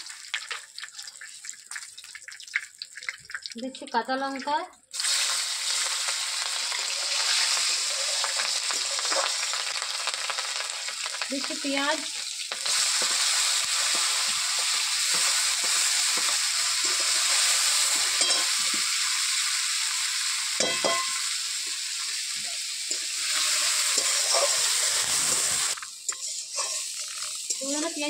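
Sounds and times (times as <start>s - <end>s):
onions sizzling in hot oil: 0.0s - 28.0s
metal spatula scraping a pan: 13.9s - 18.6s, 22.9s - 27.9s.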